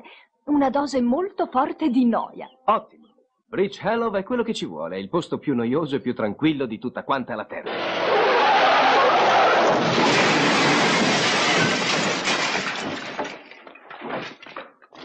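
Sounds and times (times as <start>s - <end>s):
glass window shattering: 7.8s - 14.6s
glass shards raining onto car: 8.6s - 14.5s.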